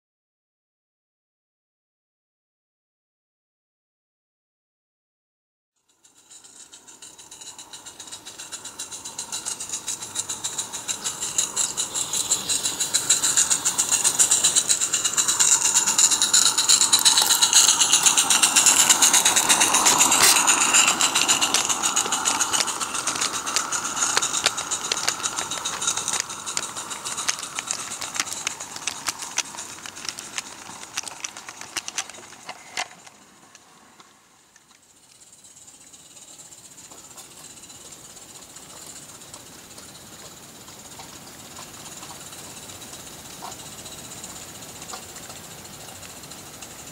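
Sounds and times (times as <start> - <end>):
steam locomotive exhaust beat: 5.9 - 34.1
steam hiss: 5.9 - 46.9
wagon wheels clicking over track: 5.9 - 46.9.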